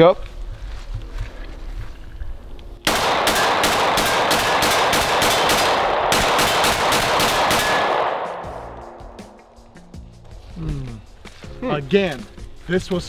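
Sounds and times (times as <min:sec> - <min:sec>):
rapid pistol fire: 0:02.9 - 0:09.2.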